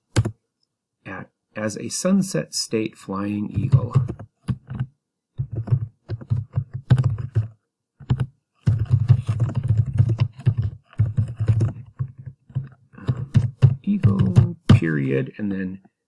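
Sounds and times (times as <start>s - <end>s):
typing on computer keyboard: 0.1s - 0.3s, 3.5s - 14.8s.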